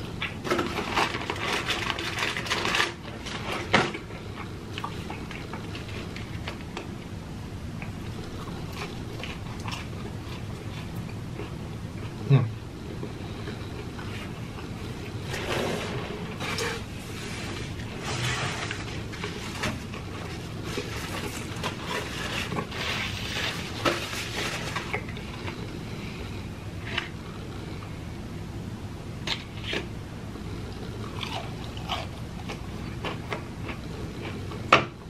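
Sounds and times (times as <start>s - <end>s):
chewing crispy food: 0.0s - 7.1s, 7.8s - 15.2s, 30.6s - 35.0s.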